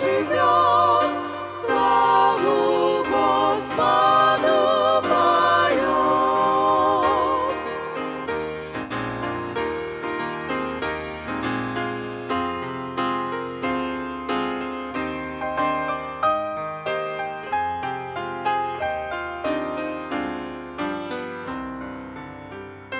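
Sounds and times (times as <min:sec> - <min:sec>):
mixed vocal group singing in harmony: 0:00.0 - 0:08.3.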